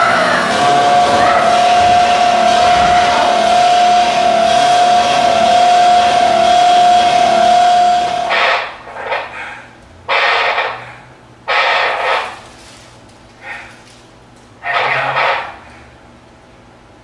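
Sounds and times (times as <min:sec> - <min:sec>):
steady high tone: 0:00.0 - 0:08.9
harsh electronic noise: 0:00.0 - 0:09.4, 0:10.1 - 0:10.9, 0:11.5 - 0:12.6, 0:14.6 - 0:15.7.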